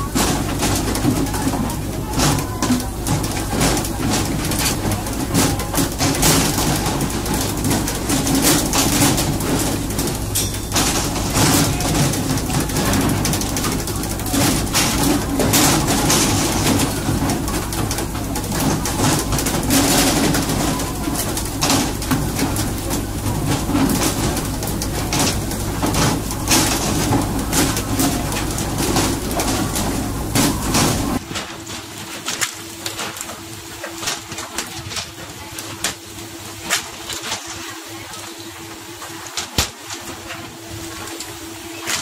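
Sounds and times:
boat engine droning: 0.0s - 32.0s.

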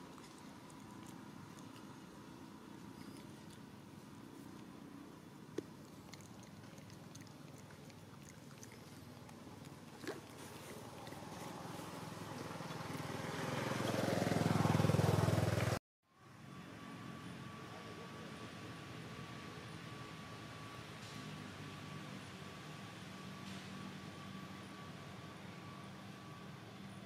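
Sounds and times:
motorbike engine approaching: 9.2s - 18.5s.

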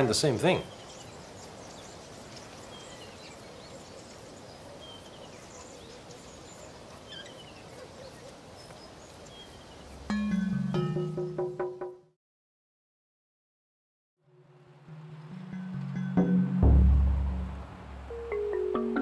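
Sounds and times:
faint bird chirps: 0.5s - 10.0s.

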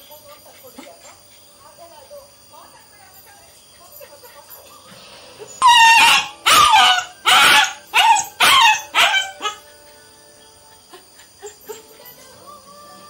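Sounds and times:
puppy barking: 5.6s - 9.7s.

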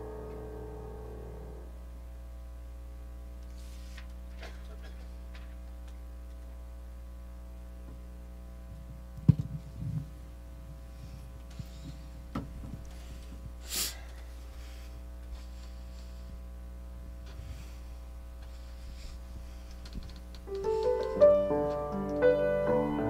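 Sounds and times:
grand piano playing: 0.0s - 1.7s, 20.5s - 23.0s
electrical hum: 0.0s - 23.0s.

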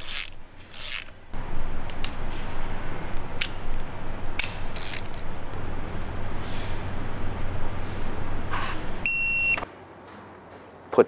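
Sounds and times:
socket ratchet clicking: 0.0s - 1.2s, 1.9s - 5.3s
steady background noise: 0.0s - 11.0s.

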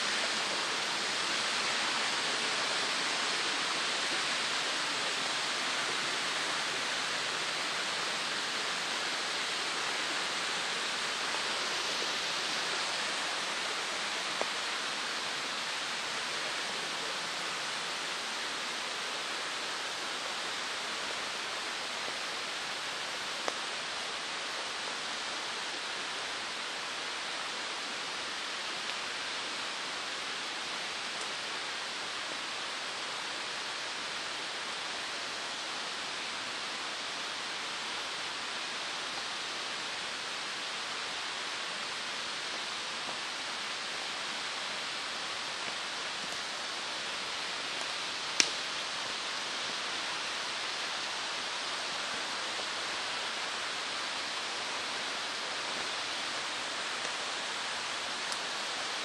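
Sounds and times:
steady rushing noise: 0.0s - 30.0s
faint click: 23.4s - 23.6s, 47.8s - 48.6s.

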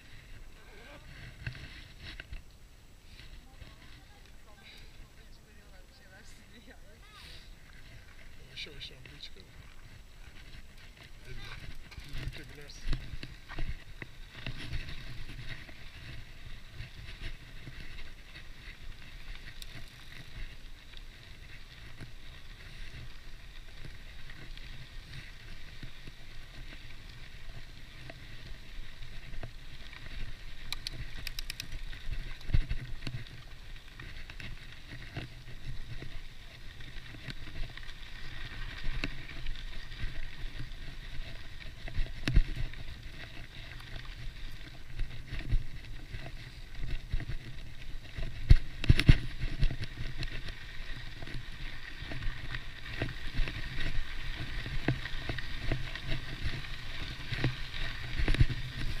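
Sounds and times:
bike tyres crunching on gravel: 0.0s - 59.0s
bike rattling over bumps: 7.6s - 59.0s.

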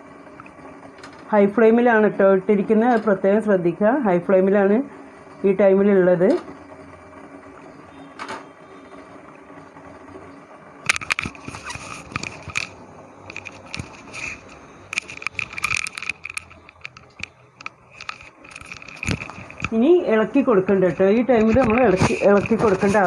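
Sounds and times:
syrup boiling with crackling pops: 0.1s - 1.0s, 10.8s - 19.8s.

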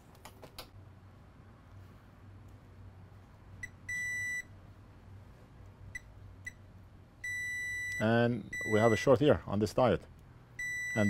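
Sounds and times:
multimeter chirp and beep: 3.6s - 4.5s, 7.2s - 9.1s, 10.6s - 11.0s.

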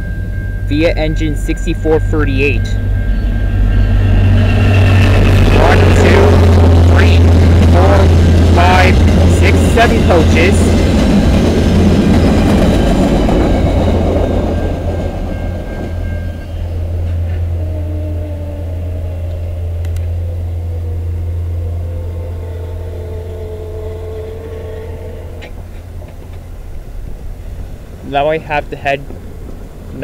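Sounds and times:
train rolling past on rails: 0.0s - 30.0s
faint tone dropping in pitch: 16.3s - 25.6s.

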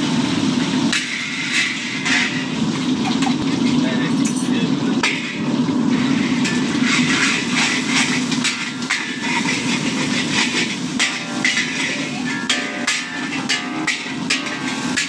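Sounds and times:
eggs sizzling in a wok: 0.0s - 15.0s
steel spatula scraping a wok: 0.9s - 2.7s, 5.0s - 15.0s
steady low hum: 4.6s - 15.0s.

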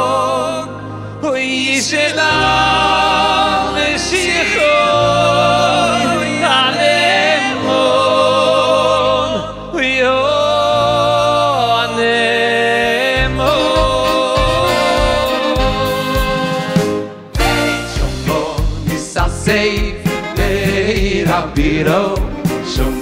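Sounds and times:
voices singing with vibrato: 0.0s - 23.0s
band low accompaniment: 12.9s - 23.0s.

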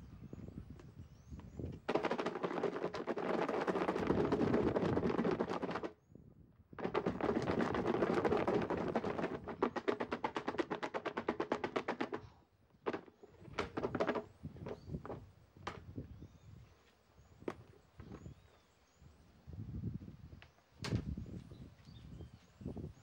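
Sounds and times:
fries rattling in plastic tub: 1.9s - 5.9s, 6.8s - 12.1s, 12.8s - 14.2s.

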